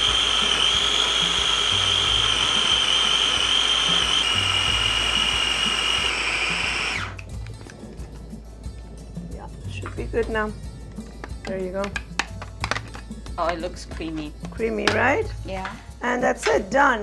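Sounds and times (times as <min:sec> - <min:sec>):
food processor motor whining: 0:00.0 - 0:08.0.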